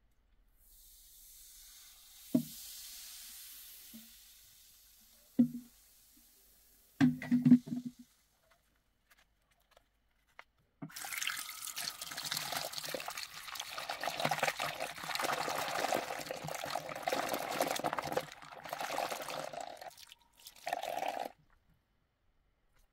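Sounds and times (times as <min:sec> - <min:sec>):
tap water running into sink: 0:10.9 - 0:21.3.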